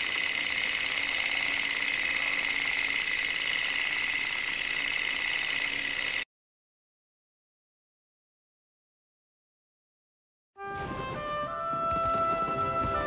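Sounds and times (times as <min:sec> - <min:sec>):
film projector clatter: 0:00.0 - 0:06.2.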